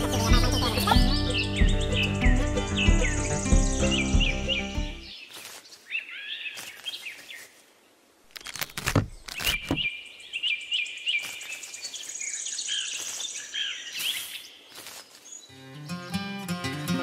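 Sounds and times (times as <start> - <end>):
birds chirping: 0.0 - 7.9, 8.7 - 16.6
plastic knocks and rustles in sand: 8.4 - 9.9.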